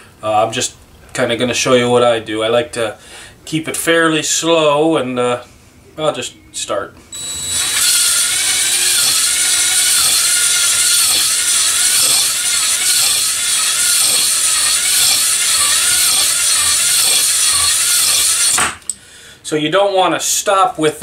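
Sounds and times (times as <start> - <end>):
electric drill whirring: 7.1 - 19.0
hone stones scraping cylinder wall: 8.5 - 18.5.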